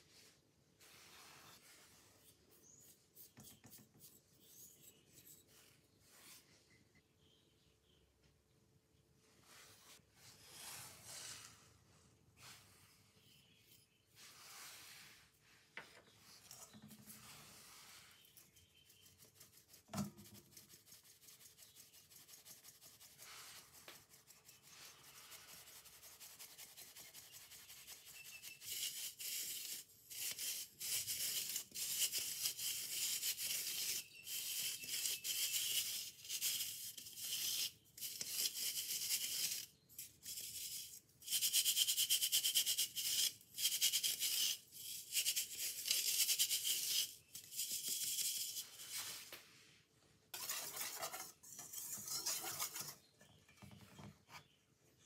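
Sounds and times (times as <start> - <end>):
flour rubbed through mesh sieve: 0.0 - 3.6, 14.0 - 49.8, 50.4 - 53.0.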